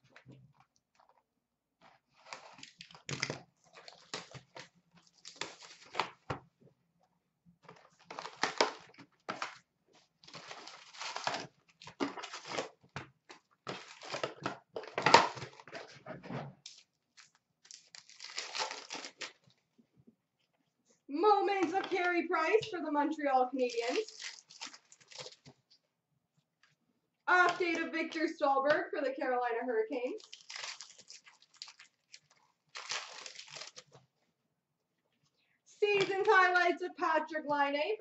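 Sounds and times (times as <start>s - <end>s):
wrappers crinkling and tearing: 2.1s - 6.2s, 7.8s - 9.6s, 10.2s - 14.5s, 16.7s - 19.6s, 23.6s - 25.6s, 30.2s - 34.0s.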